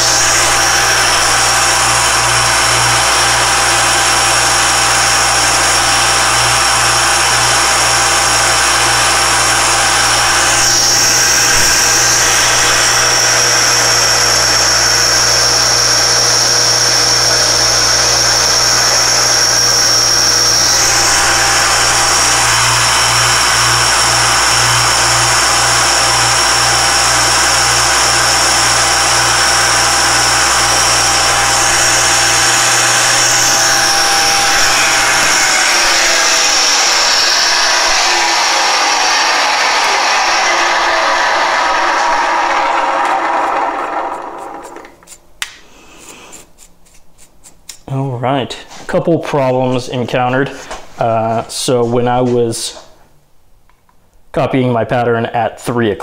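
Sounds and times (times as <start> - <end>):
high whine: 0.0 - 45.1
spindle motor running: 0.0 - 45.2
engraving cutter cutting metal: 0.0 - 45.3
low throbbing hum: 18.4 - 40.4.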